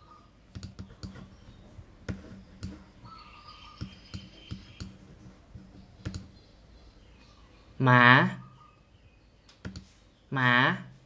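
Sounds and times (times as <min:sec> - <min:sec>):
computer mouse clicking: 0:00.5 - 0:01.3, 0:02.0 - 0:02.8, 0:03.8 - 0:05.0, 0:05.6 - 0:06.4, 0:09.5 - 0:09.9.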